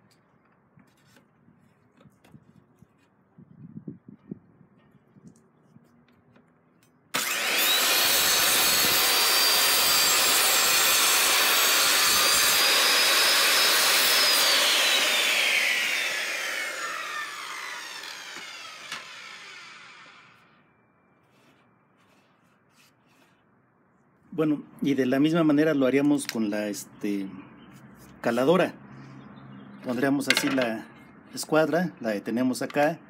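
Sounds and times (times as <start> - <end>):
saw blade winding down: 7.1 - 20.6
circular saw cutting wood: 7.1 - 23.4.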